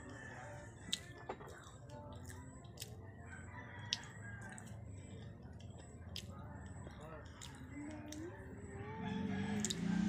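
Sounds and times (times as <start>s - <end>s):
distant rooster crowing: 0.0s - 0.9s, 3.2s - 4.8s, 8.8s - 10.0s
eating clicks and smacks: 0.9s - 3.0s, 3.9s - 8.4s, 9.6s - 9.9s.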